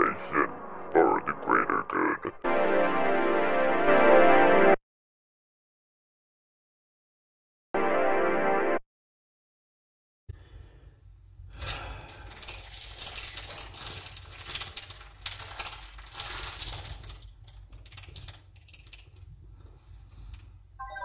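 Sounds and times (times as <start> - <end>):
crackling clicks and rustles: 11.5 - 20.6.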